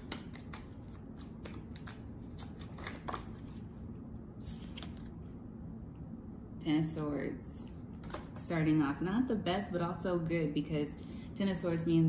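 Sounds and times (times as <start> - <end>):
cards being shuffled: 0.0 - 3.8, 4.4 - 5.3.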